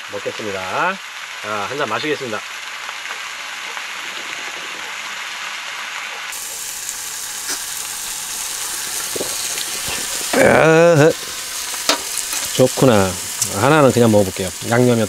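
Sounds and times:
steak sizzling in a pan: 0.2s - 15.0s
man's wavering vocal exclamation: 10.3s - 11.2s.

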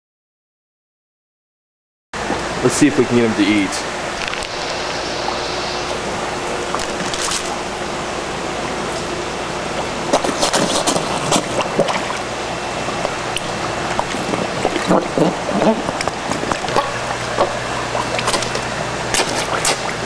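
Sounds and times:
running pond water: 2.2s - 20.0s
fish splashing at water surface: 4.1s - 20.0s.

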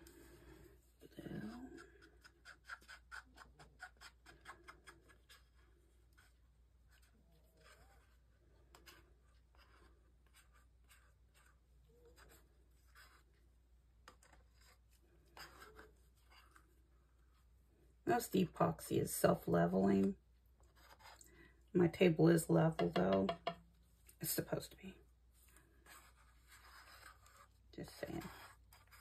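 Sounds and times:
stick scraping a cup: 1.2s - 6.3s
stick ticking against a cup: 22.8s - 23.7s.

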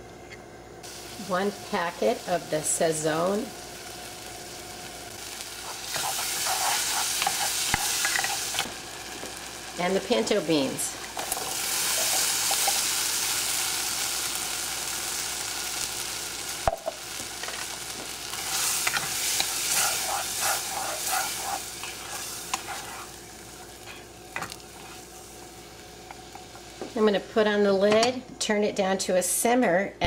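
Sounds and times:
beans sizzling in saucepan: 0.8s - 28.0s
spoon scraping saucepan: 18.8s - 23.1s.

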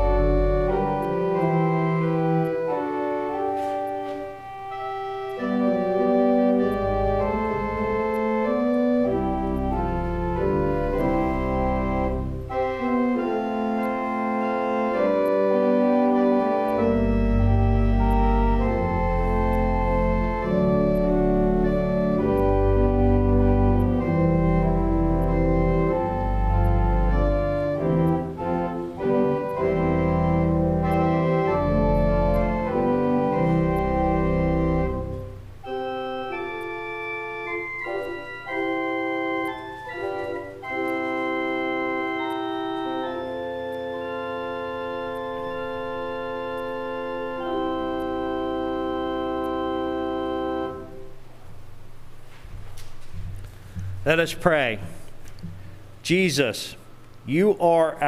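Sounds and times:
deep organ pedal bass notes: 0.0s - 52.0s
organ playing held chords: 0.0s - 52.3s, 53.4s - 58.0s.

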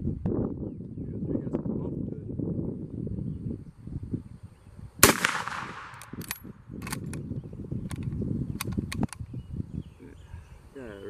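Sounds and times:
rifle shot: 5.0s - 7.0s
rifle bolt clicking: 5.2s - 7.2s.

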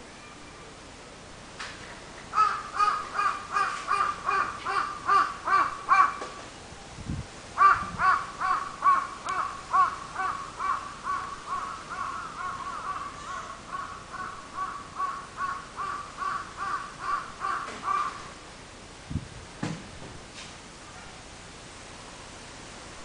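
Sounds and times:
bird calling short calls: 7.6s - 18.3s.

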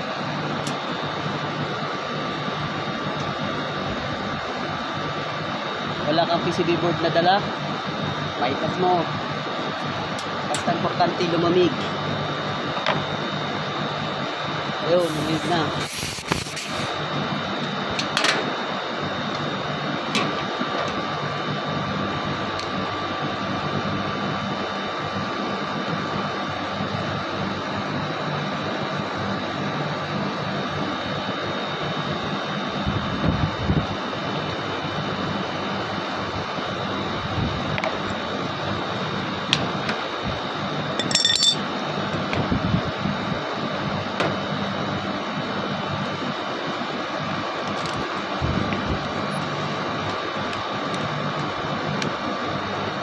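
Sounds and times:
air conditioner unit humming: 0.0s - 53.0s
metallic clink: 15.0s - 17.0s, 41.0s - 41.6s.

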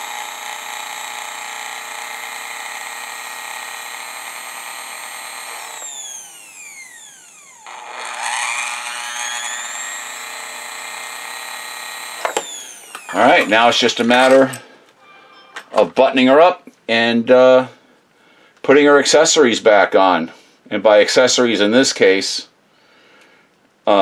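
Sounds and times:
sewing machine motor whining: 0.0s - 13.7s.

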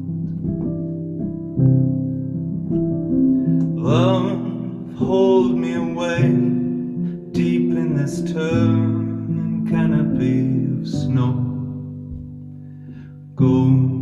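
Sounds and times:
keyboard piano chords: 0.0s - 14.0s
man singing: 3.7s - 12.0s, 13.4s - 14.0s.

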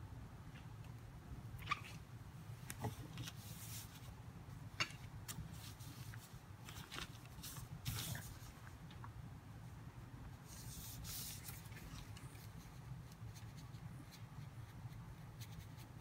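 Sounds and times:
cloth rustling over paper: 2.8s - 4.2s, 5.3s - 8.8s, 10.4s - 12.7s.

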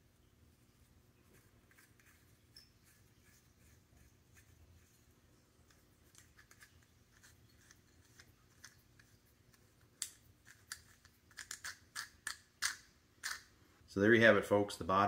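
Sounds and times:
metal bolt ticking and scraping: 10.0s - 13.5s.

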